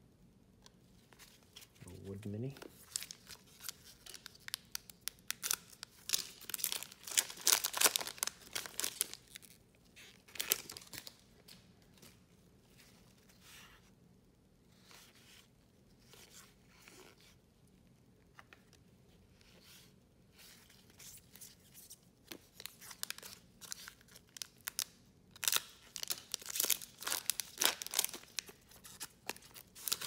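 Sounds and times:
cards rustling: 1.1 - 13.4, 25.8 - 30.0
card pack wrapper tearing and crinkling: 2.5 - 11.2, 22.4 - 30.0.

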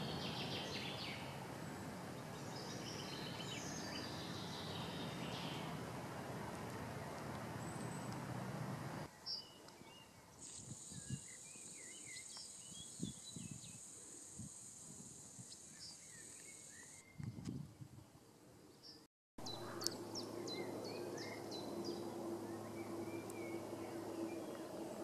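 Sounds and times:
songbirds chirping: 0.0 - 14.5, 15.1 - 17.4, 18.0 - 25.0
high-pitched insect buzz: 10.4 - 17.0.

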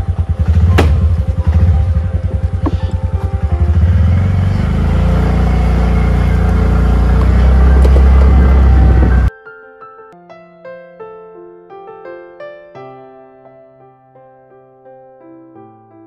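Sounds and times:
motorcycle engine running: 0.0 - 9.3
soft piano music: 0.0 - 16.0.

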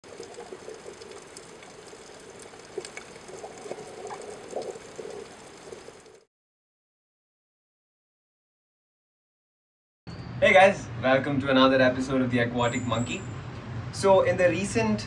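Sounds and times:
watery bubbling: 0.0 - 6.3.

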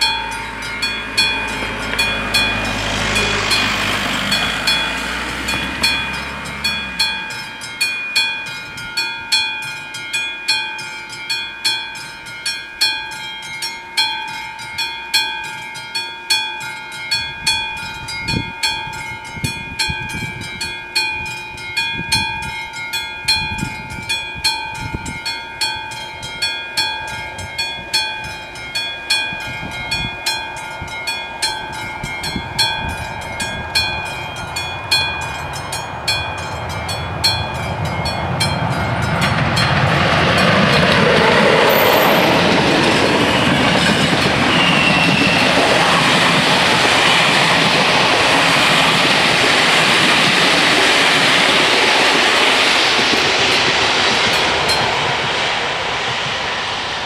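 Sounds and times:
level crossing bells ringing: 0.0 - 55.1
car driving past: 0.3 - 7.6.

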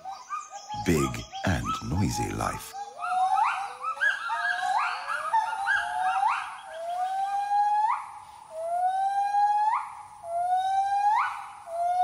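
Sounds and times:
gibbon whooping calls: 3.0 - 12.0.

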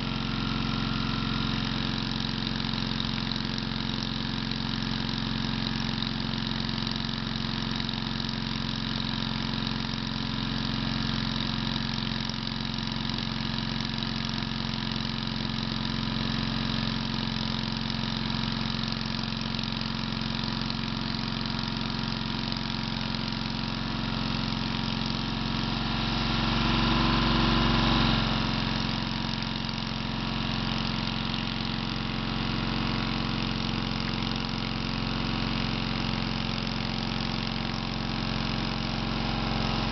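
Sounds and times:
air compressor droning: 0.0 - 3.9, 18.2 - 39.9.

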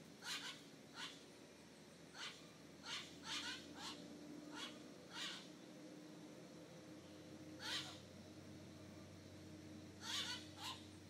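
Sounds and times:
bird mewing calls: 0.2 - 1.2, 2.1 - 5.5, 7.6 - 8.1, 10.0 - 10.9.

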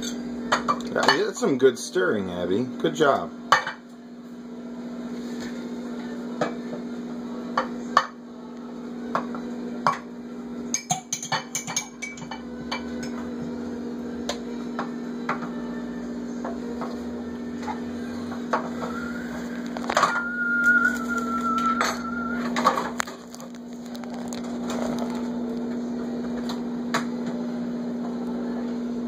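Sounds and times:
metal spoon clinking against dishes: 10.7 - 13.2.

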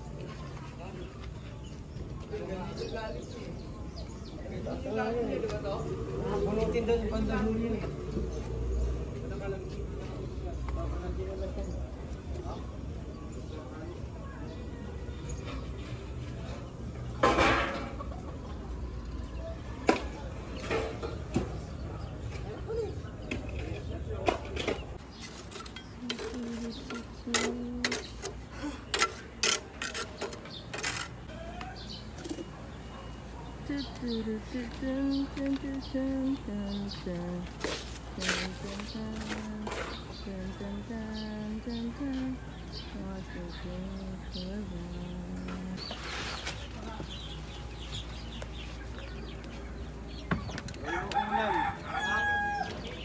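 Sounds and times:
chickens clucking: 17.2 - 19.0
trowel clinking and scraping: 25.0 - 31.4
rooster crowing: 50.8 - 53.0.

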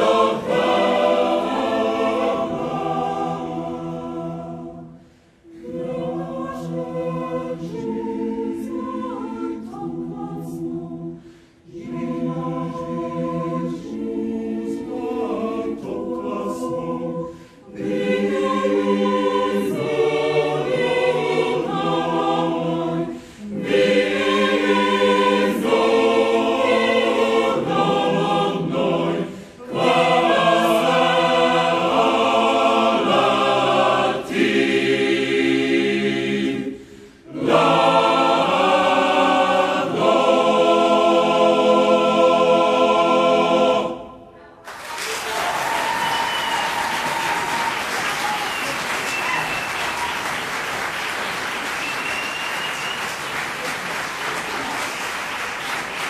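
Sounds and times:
mixed choir singing a cappella: 0.0 - 44.7.

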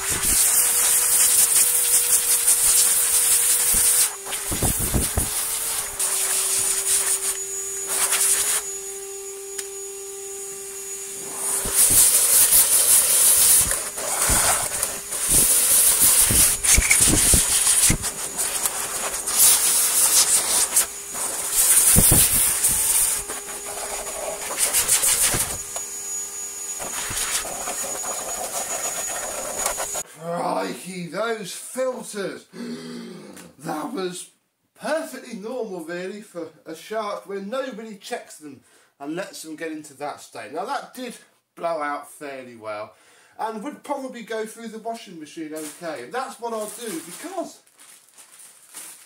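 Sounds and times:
compressed air hissing bursts: 0.0 - 8.7, 11.2 - 25.8, 26.7 - 30.0.

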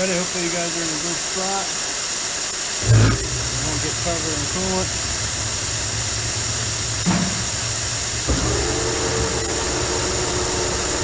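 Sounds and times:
steady hiss: 0.0 - 11.0
lathe switching on thump: 2.8 - 10.6
lathe spindle hum: 2.8 - 11.0.

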